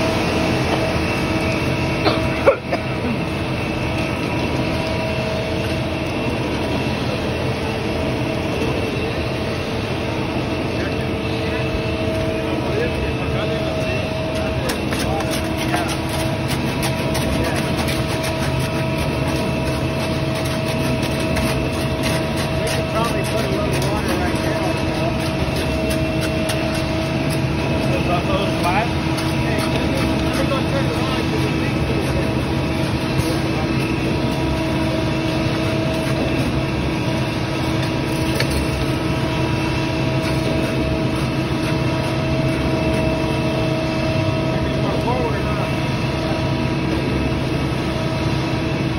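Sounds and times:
steady mechanical whine: 0:00.0 - 0:48.9
truck engine humming: 0:00.0 - 0:48.9
wet concrete pouring down chute: 0:12.6 - 0:47.2
shovels scraping wet concrete: 0:14.3 - 0:39.3, 0:40.0 - 0:43.3.

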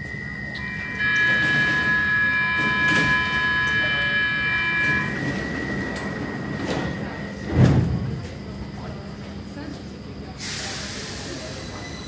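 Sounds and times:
high-pitched train whine: 0:00.0 - 0:09.1.

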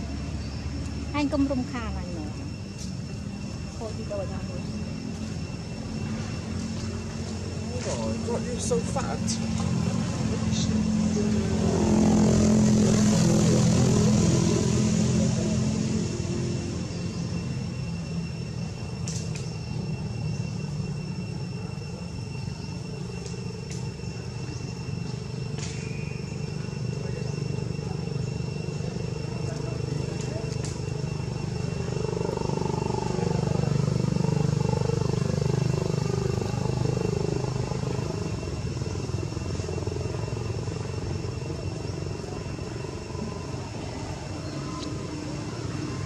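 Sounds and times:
engine running with low throb: 0:00.0 - 0:46.0
thin high whine: 0:00.0 - 0:46.0.

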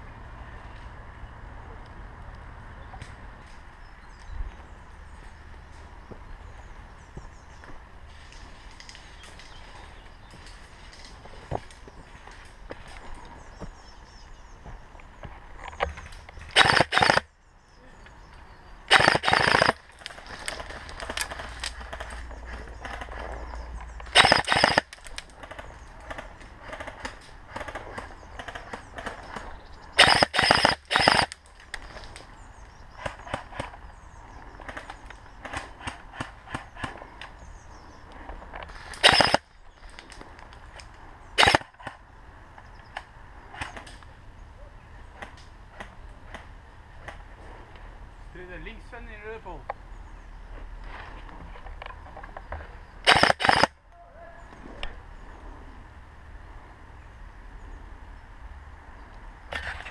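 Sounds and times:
airsoft rifle firing bursts: 0:16.5 - 0:17.3, 0:18.9 - 0:22.2, 0:24.1 - 0:25.6, 0:30.0 - 0:31.4, 0:39.0 - 0:39.5, 0:41.4 - 0:41.7, 0:53.0 - 0:53.7.

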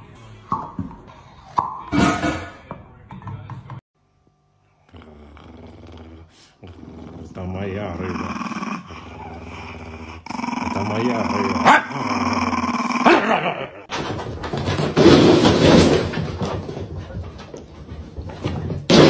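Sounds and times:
dog growling and snarling: 0:04.9 - 0:13.9
dog barking: 0:11.6 - 0:12.0
rustling and clatter: 0:13.9 - 0:18.9.

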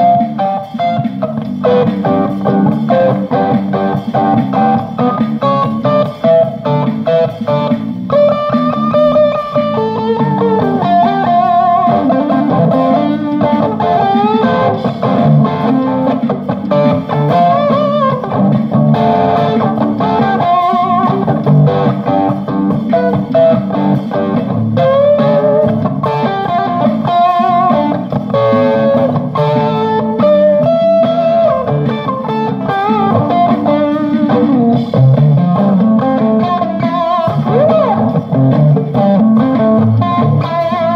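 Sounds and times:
electric guitar lead lines: 0:00.0 - 0:40.9
guitar chordal accompaniment: 0:00.0 - 0:40.9.

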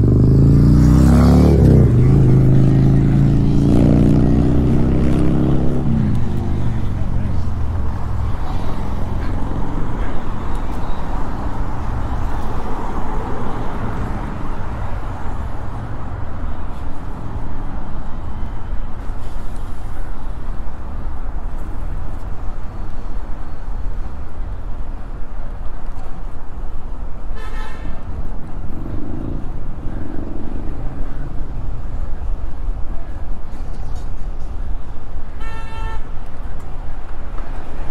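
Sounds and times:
city traffic: 0:00.0 - 0:37.9
car horn beep: 0:27.4 - 0:28.0, 0:35.4 - 0:36.2.

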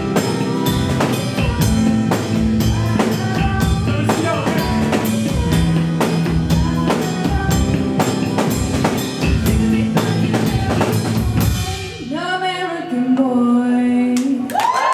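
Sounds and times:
held bass notes: 0:00.0 - 0:11.9
drum kit beat: 0:00.0 - 0:12.4.

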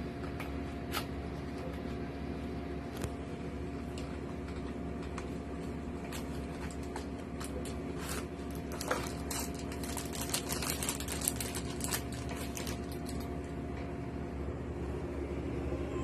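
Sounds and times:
steady low hum: 0:00.0 - 0:16.0
plastic wrapper crinkling: 0:06.1 - 0:13.5.

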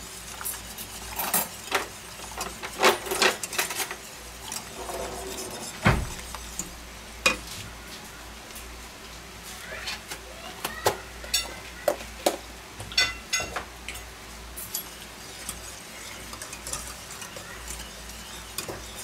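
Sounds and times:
whisk clinking and scraping pot: 0:00.0 - 0:07.5, 0:14.6 - 0:19.0.

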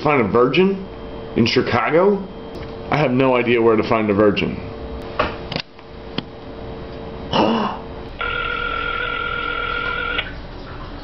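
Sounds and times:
telephone ringback tone: 0:08.2 - 0:10.3.

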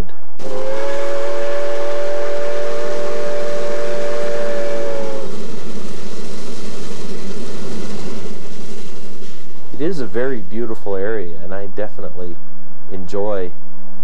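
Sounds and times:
steam locomotive whistle: 0:00.4 - 0:10.8
locomotive steam and running noise: 0:00.4 - 0:12.2.

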